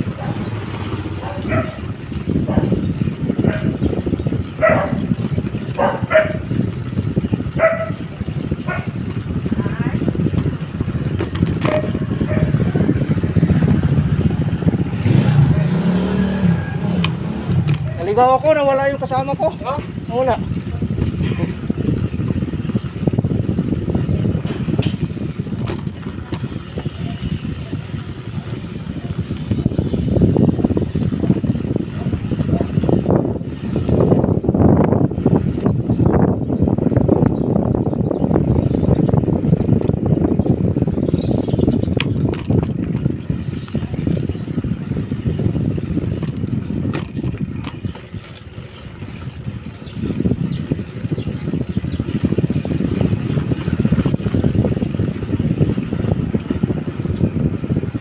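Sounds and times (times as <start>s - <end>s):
wind rumble on microphone: 0.0s - 58.0s
dog barking: 1.2s - 1.8s, 3.4s - 3.8s, 4.6s - 5.0s, 5.8s - 6.5s, 7.6s - 8.0s, 8.6s - 9.0s, 11.7s - 12.6s, 32.0s - 32.8s.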